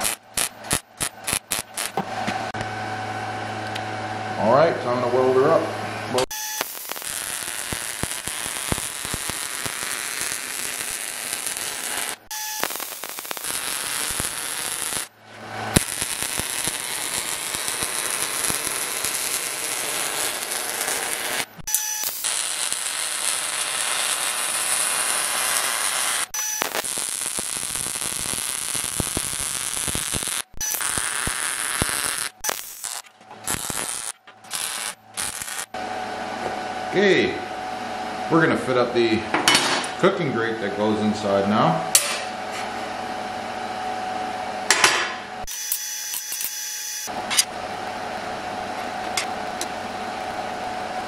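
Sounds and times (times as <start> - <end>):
welding arc crackling: 0.0 - 2.4, 6.2 - 35.8, 45.4 - 47.5.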